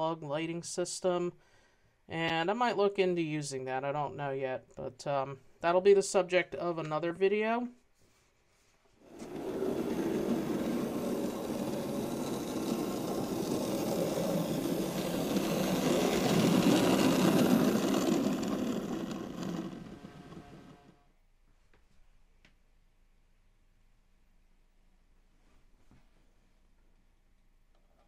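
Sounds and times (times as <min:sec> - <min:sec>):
model trolley running on track: 0:09.1 - 0:21.0.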